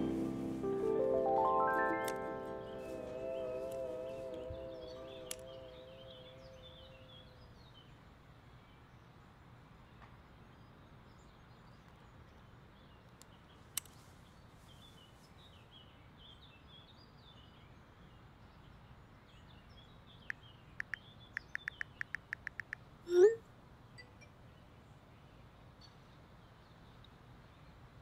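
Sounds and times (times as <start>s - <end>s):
rising electronic tone: 0.0s - 7.1s
birds chirping: 0.0s - 7.6s, 20.2s - 22.8s
phone keyboard clicks: 20.8s - 22.8s.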